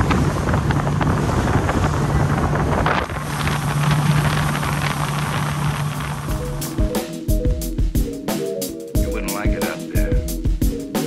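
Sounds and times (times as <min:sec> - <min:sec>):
wind buffeting microphone: 0:00.0 - 0:07.0
water rushing past hull: 0:00.0 - 0:07.6
outboard motor running: 0:00.0 - 0:07.8.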